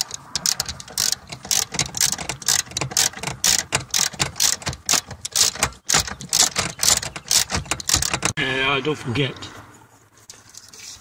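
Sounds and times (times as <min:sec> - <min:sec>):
ratchet wrench clicking: 0:00.0 - 0:08.4.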